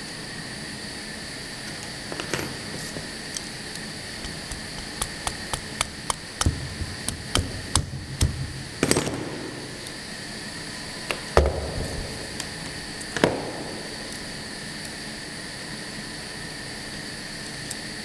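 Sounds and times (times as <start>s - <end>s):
machine hum: 0.0s - 18.0s
machine knocking: 4.2s - 8.6s.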